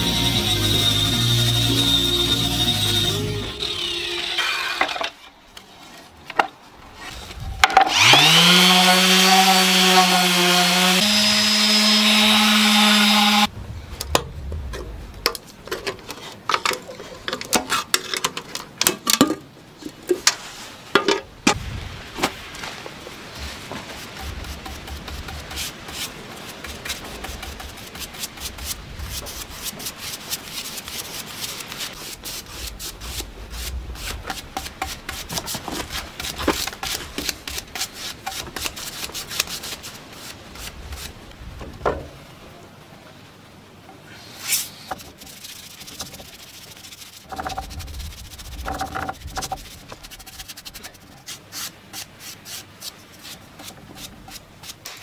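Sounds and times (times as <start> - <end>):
paintbrush scrubbing on wood: 23.4 - 41.1, 44.2 - 55.0
scrapes and knocks: 33.0 - 39.5, 44.6 - 52.0.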